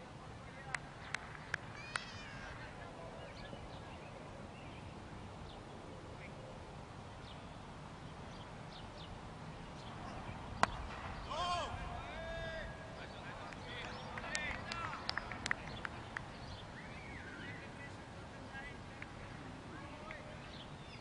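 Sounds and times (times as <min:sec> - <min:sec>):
outdoor background noise: 0:00.0 - 0:21.0
cricket bat striking ball: 0:10.6 - 0:11.3.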